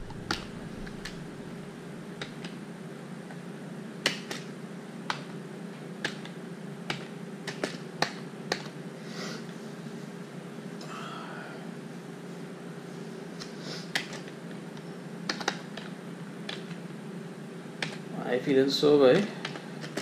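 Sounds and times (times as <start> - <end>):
steady low hum: 0.0 - 20.0
keyboard key clicks: 15.3 - 15.9.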